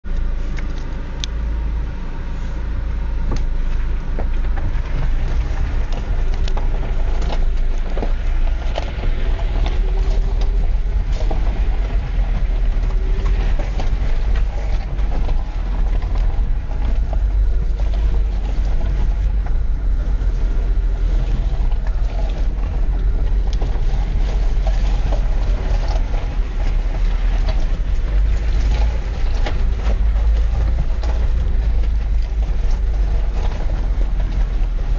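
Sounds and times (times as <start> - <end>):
car engine and tyres rumbling: 0.0 - 34.9
gravel clicks and knocks: 3.1 - 34.9.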